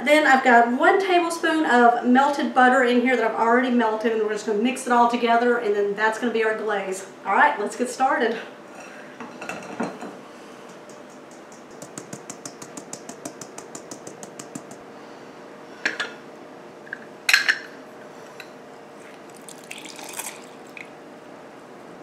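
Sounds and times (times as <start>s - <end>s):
juice dripping into cup: 19.1s - 21.0s.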